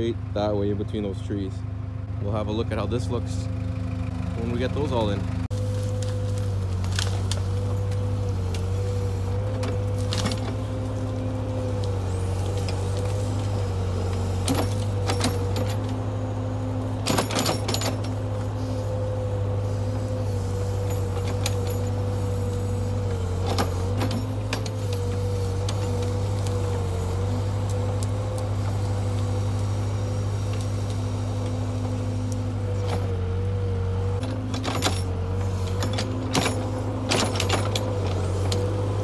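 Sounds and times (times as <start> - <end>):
diesel engine running under load: 0.0 - 39.0
branches breaking: 5.5 - 13.5
backhoe bucket digging: 5.6 - 33.3, 34.2 - 39.0.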